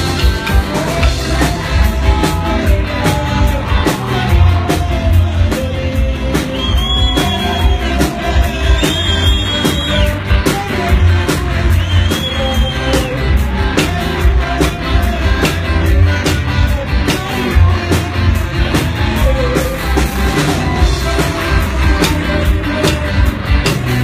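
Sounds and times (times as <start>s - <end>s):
heavy bass: 0.0s - 24.0s
live band playing loud music: 0.0s - 24.0s
drum strikes: 20.5s - 24.0s.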